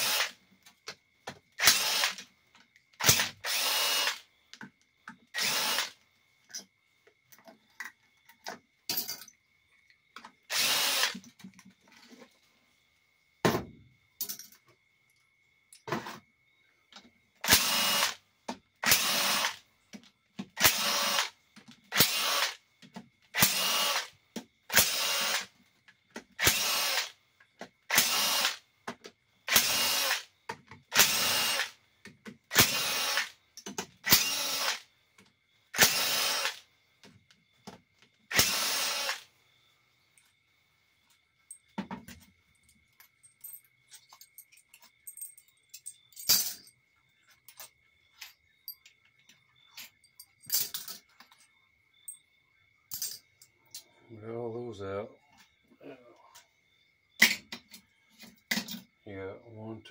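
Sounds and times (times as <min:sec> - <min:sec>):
power drill spinning bolts: 0:00.0 - 0:00.4, 0:01.6 - 0:02.3, 0:02.9 - 0:04.2, 0:05.1 - 0:06.6, 0:10.5 - 0:11.6, 0:17.4 - 0:18.2, 0:18.8 - 0:19.6, 0:20.4 - 0:21.3, 0:21.9 - 0:22.6, 0:23.3 - 0:24.1, 0:24.7 - 0:25.5, 0:26.3 - 0:27.1, 0:27.9 - 0:28.6, 0:29.5 - 0:30.3, 0:30.9 - 0:31.7, 0:32.5 - 0:34.8, 0:35.8 - 0:36.6, 0:38.3 - 0:39.2
clicks and taps of parts: 0:33.6 - 0:34.0.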